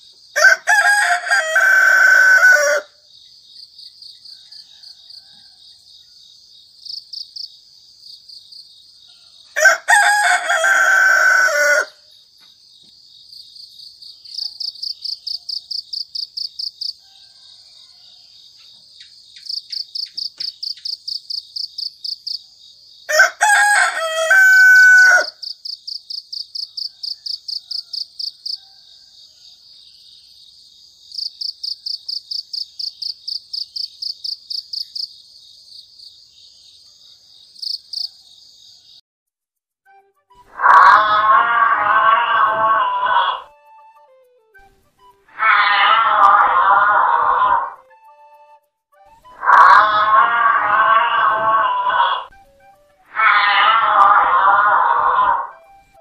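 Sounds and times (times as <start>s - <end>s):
crickets chirping: 0.0s - 39.0s
rooster crowing: 0.4s - 3.0s, 4.2s - 6.2s, 9.1s - 12.1s, 16.8s - 18.6s, 23.1s - 25.5s, 26.6s - 29.8s, 40.5s - 43.6s, 45.3s - 48.0s, 49.3s - 52.3s, 53.1s - 55.8s.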